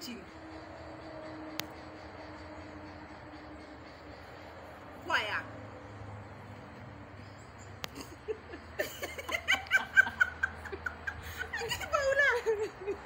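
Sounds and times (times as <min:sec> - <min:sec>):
woman giggling: 0:07.9 - 0:13.0.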